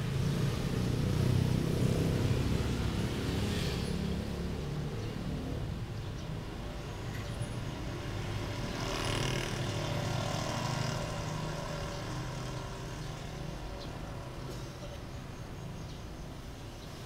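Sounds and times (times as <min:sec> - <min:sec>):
vehicle passing: 0:00.0 - 0:05.8, 0:07.8 - 0:14.5
low engine rumble of traffic: 0:00.0 - 0:17.0.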